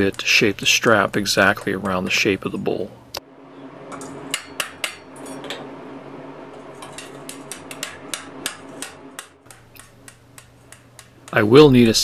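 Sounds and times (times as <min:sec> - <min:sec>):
hammer striking hot iron: 0:03.9 - 0:05.7, 0:06.7 - 0:11.7.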